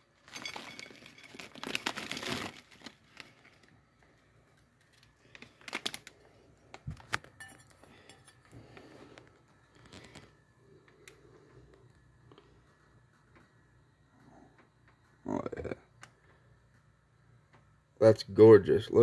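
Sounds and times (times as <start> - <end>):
plastic bag crinkling: 0.0 - 4.1, 4.8 - 7.3, 9.7 - 10.4.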